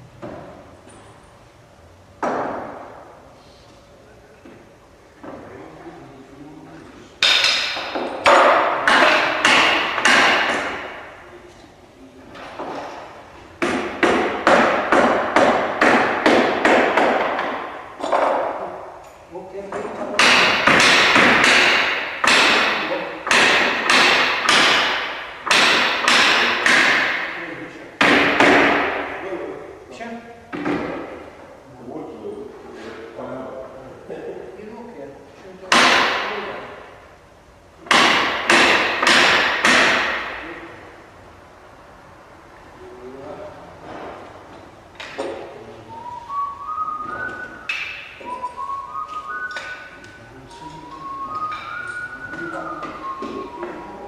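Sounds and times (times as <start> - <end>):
sharp knocks: 2.2 - 3.1, 7.2 - 11.2, 12.4 - 18.7, 19.7 - 29.3, 30.5 - 31.3, 35.7 - 36.6, 37.8 - 40.7, 47.0 - 48.6
person whistling: 45.9 - 54.0.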